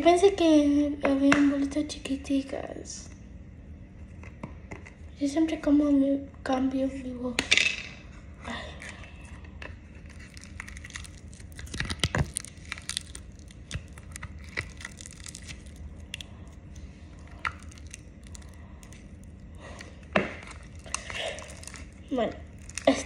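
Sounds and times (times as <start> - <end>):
low steady hum: 0.0 - 23.0
fingers squeezing slime: 10.0 - 23.0.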